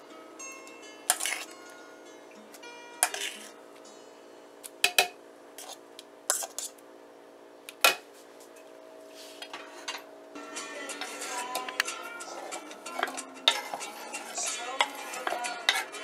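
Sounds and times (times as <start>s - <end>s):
metal utensil scraping a pot: 1.1s - 1.5s, 3.0s - 3.6s, 9.6s - 16.0s.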